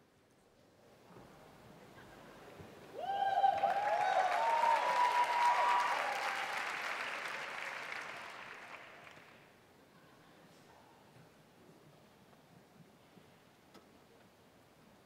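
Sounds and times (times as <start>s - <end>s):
high cheering calls: 2.9s - 9.4s
audience applause: 3.0s - 9.5s.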